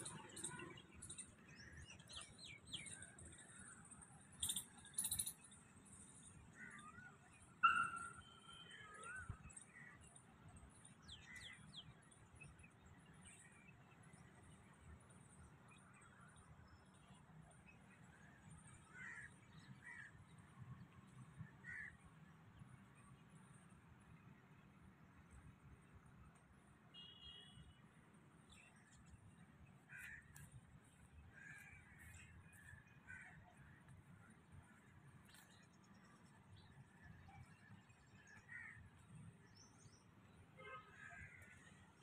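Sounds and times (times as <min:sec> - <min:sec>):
bird warbling call: 0:07.6 - 0:09.2.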